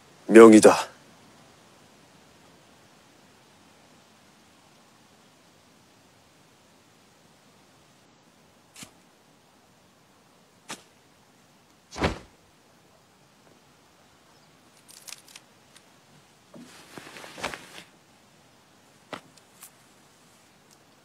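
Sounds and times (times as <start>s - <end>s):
bamboo hat rustling swish: 8.8s - 9.0s, 10.6s - 10.9s, 11.9s - 12.4s, 16.5s - 17.9s
thump: 11.9s - 12.3s.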